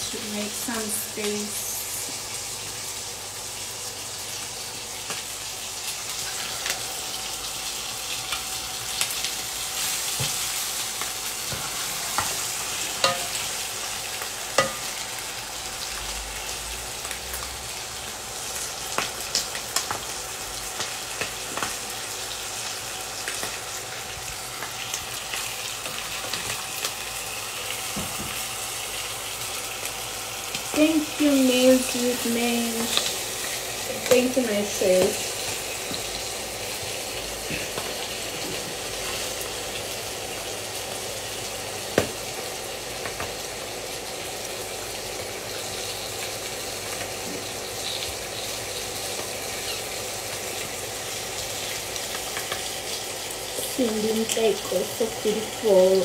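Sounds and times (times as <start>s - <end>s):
chicken wings sizzling in oil: 0.0s - 56.0s
metal tongs clicking on pan: 13.0s - 13.4s.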